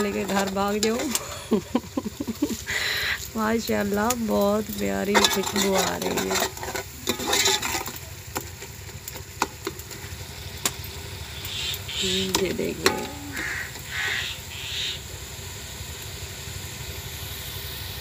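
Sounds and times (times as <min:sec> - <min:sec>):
metal ladle stirring in a pot: 0:00.0 - 0:01.5, 0:04.7 - 0:10.1, 0:12.4 - 0:13.9
bird calling: 0:02.6 - 0:03.3, 0:11.3 - 0:15.1.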